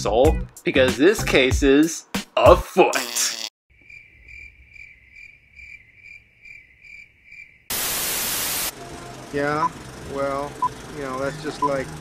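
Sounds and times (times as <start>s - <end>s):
crickets chirping: 3.7s - 8.6s
tv static hiss: 7.7s - 8.7s.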